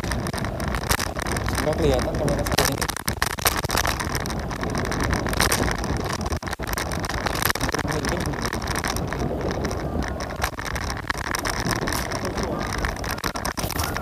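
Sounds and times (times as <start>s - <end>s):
scooter road noise: 0.0s - 14.0s
wind buffeting microphone: 0.0s - 14.0s.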